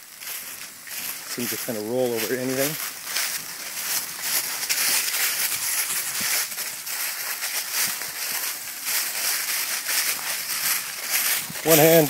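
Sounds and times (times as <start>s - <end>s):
cart wheels on leaves: 0.0s - 12.0s
footsteps crunching dry leaves: 0.0s - 12.0s.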